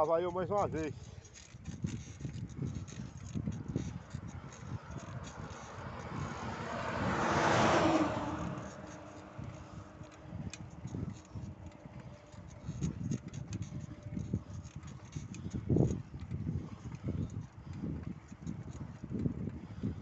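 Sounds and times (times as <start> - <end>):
wind buffeting microphone: 0.0 - 20.0
truck passing by: 3.8 - 13.3.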